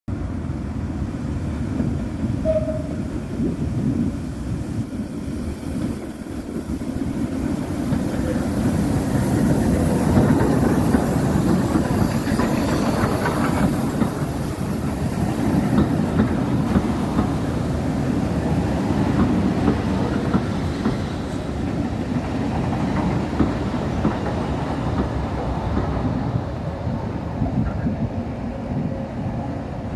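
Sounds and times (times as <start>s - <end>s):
steam train rumble: 0.1s - 29.9s
wheels clacking over rail joints: 5.7s - 26.5s.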